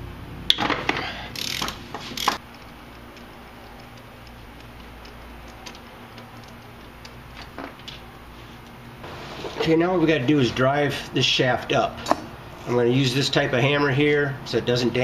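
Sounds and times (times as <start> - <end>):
faint ratchet ticks: 1.4 - 8.0.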